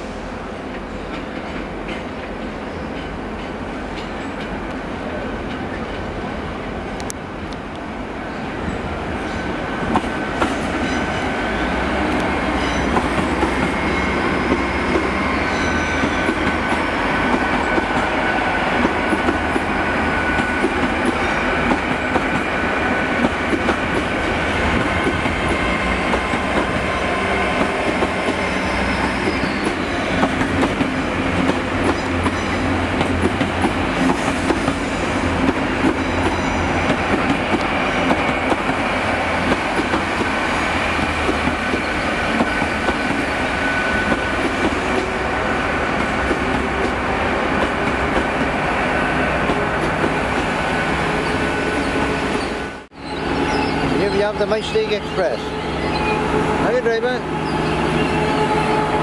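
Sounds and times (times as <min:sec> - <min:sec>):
train rumbling past: 0:00.0 - 0:59.0.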